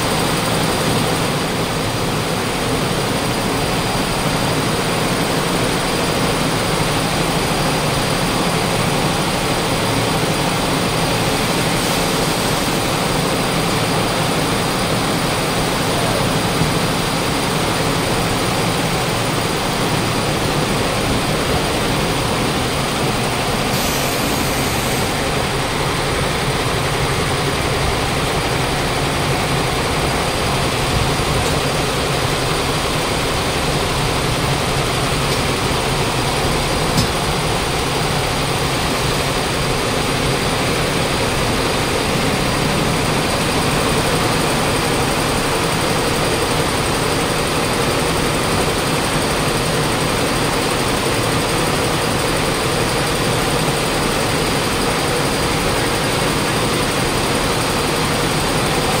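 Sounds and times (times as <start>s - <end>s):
textile machinery din: 8.2s - 47.4s.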